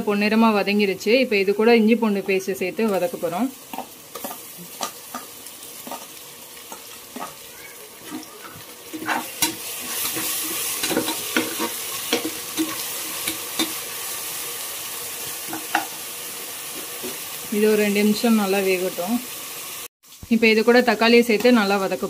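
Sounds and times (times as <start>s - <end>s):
onions sizzling in oil: 0.0s - 22.0s
metal spatula scraping a pot: 8.0s - 13.8s.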